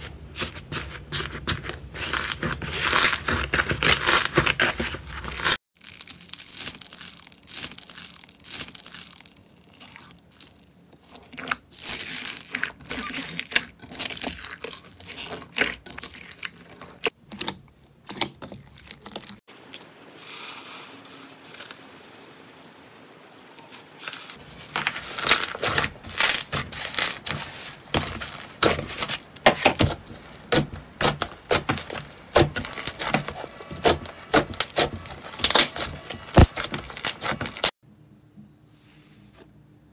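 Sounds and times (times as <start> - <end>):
slime squelching and popping: 29.8 - 37.7.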